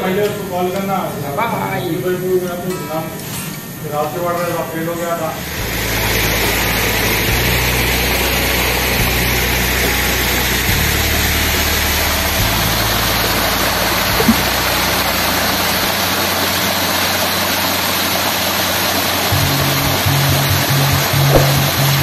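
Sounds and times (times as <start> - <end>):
flowing water rushing: 0.4 - 22.0
low hum: 5.4 - 17.8, 19.2 - 22.0.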